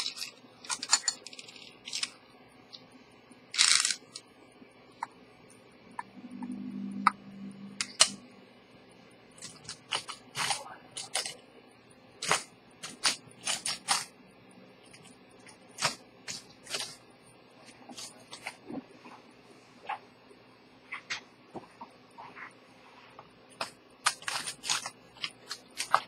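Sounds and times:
brief low hum: 0:06.0 - 0:07.8.

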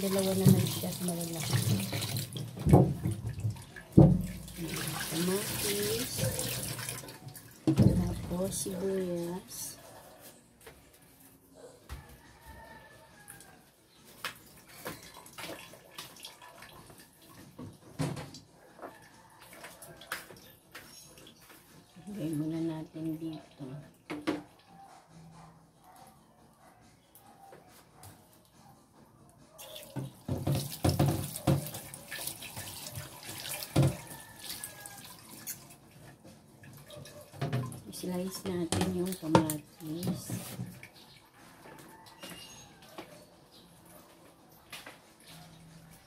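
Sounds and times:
cutting board knocking in sink: 0:01.4 - 0:04.5, 0:30.0 - 0:31.7, 0:33.7 - 0:34.1.

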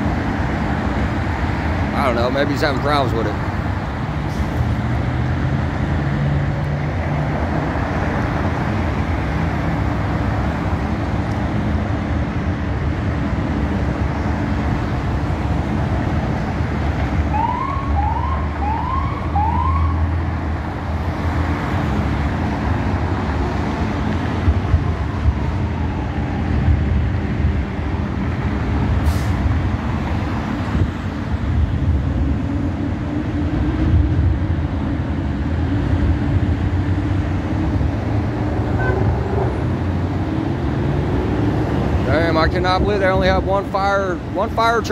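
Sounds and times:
freeway traffic noise: 0:00.0 - 0:44.9
siren whoops: 0:17.3 - 0:20.1.

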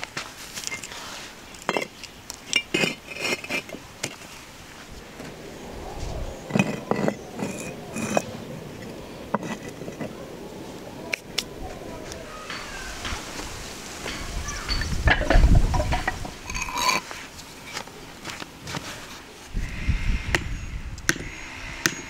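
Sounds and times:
concrete blocks scraping: 0:00.2 - 0:05.4, 0:06.1 - 0:10.2, 0:12.5 - 0:19.2
concrete blocks knocking: 0:06.5 - 0:08.3, 0:09.3 - 0:10.1, 0:14.0 - 0:17.0.

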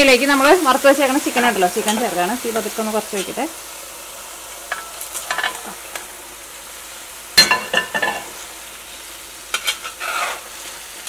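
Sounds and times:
food sizzling in a pot: 0:00.0 - 0:11.0
metal spatula scraping pot: 0:09.5 - 0:10.5.

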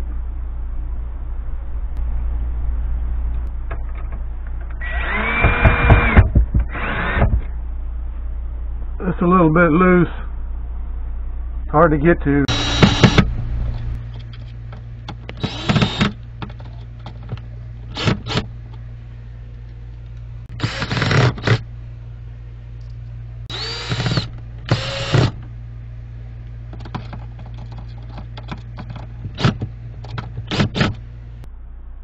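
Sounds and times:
cordless drill driving screws: 0:12.5 - 0:13.2, 0:15.4 - 0:16.2, 0:20.6 - 0:21.6, 0:23.5 - 0:25.3.

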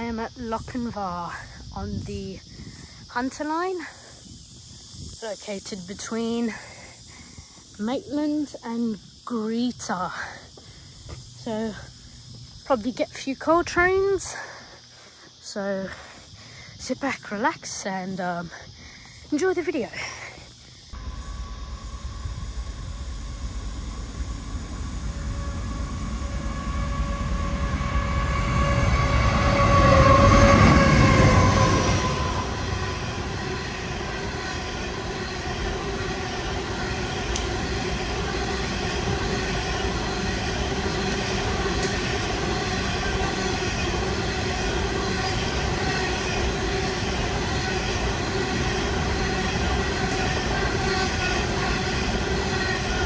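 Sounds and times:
high tones from train wheels: 0:20.9 - 0:53.0
diesel locomotives passing: 0:21.0 - 0:53.0
freight wagons rolling rumble: 0:21.0 - 0:53.0.

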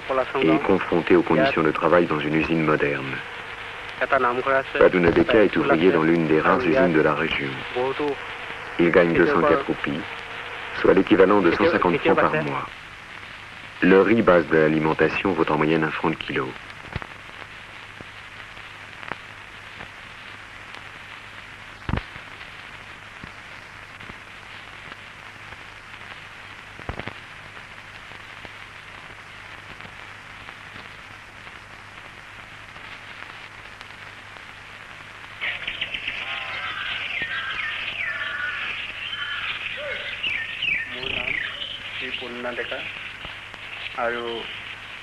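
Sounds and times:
film soundtrack hiss and hum: 0:00.0 - 0:45.0
birds calling: 0:35.4 - 0:45.0.

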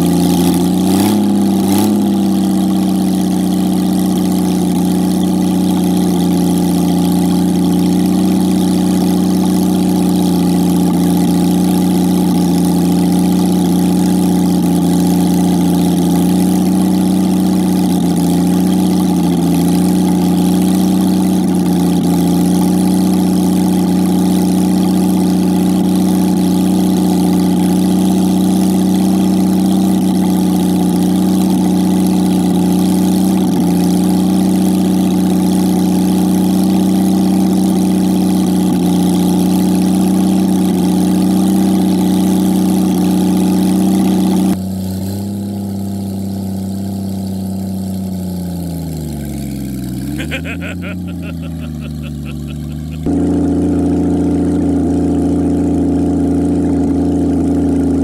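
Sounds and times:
car engine idling: 0:00.0 - 0:16.9.

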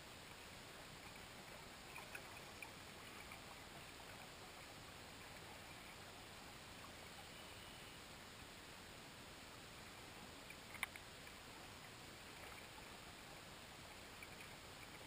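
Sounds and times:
faint short ticks: 0:10.5 - 0:11.4.

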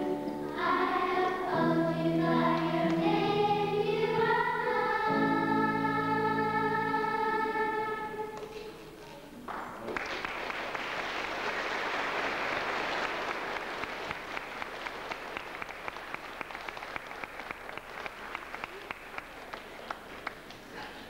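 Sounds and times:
crowd applauding: 0:09.4 - 0:21.0.

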